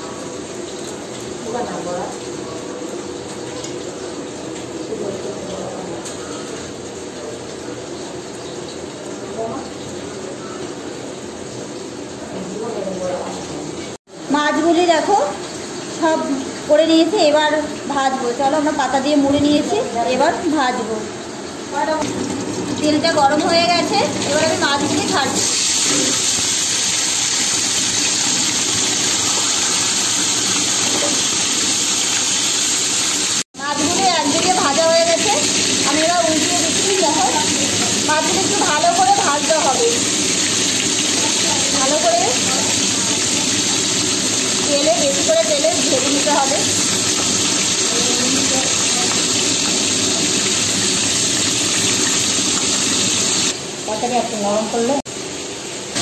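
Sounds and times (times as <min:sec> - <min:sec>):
fritters sizzling in hot oil: 0:00.0 - 0:54.2.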